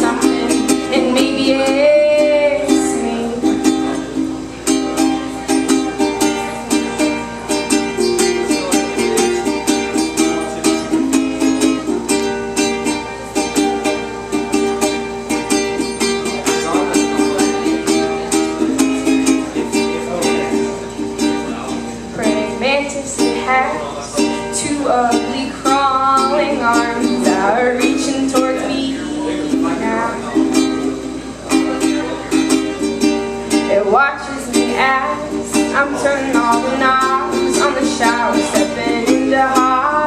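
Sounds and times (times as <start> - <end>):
ukulele strumming chords: 0.0 - 40.0.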